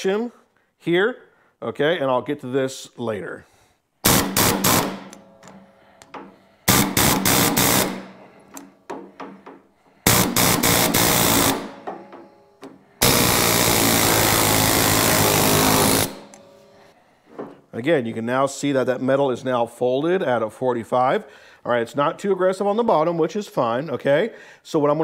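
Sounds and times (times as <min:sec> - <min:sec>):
air hammer bursts on steel: 0:04.0 - 0:17.0.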